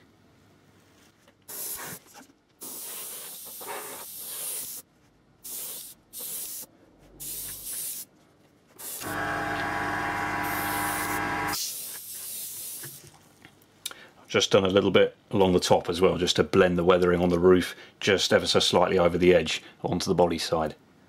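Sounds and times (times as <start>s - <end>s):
airbrush spraying: 1.5s - 2.0s, 2.6s - 8.1s, 8.8s - 13.0s
steady hum: 9.0s - 11.6s.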